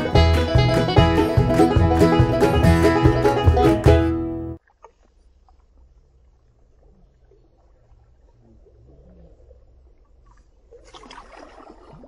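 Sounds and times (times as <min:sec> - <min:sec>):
faint low rumble: 0:04.6 - 0:10.8.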